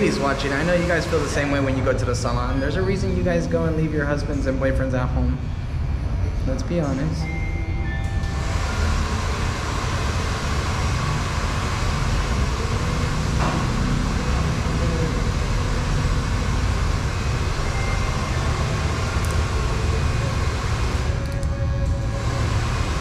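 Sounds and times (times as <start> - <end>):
electric hair clippers buzzing: 8.2 - 21.4, 22.0 - 23.0.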